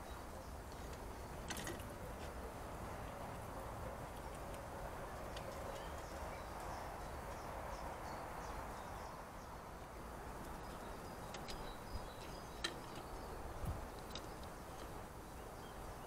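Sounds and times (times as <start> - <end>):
steady background hiss: 0.0 - 16.0
distant bird chirps: 4.2 - 16.0.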